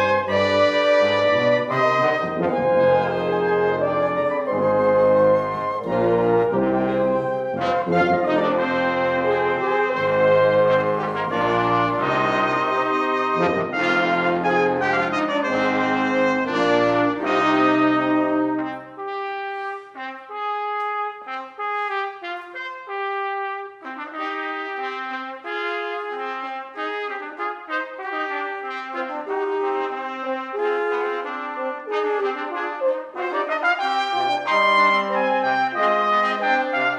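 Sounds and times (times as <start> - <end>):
wind and brass ensemble playing: 0.0 - 36.9.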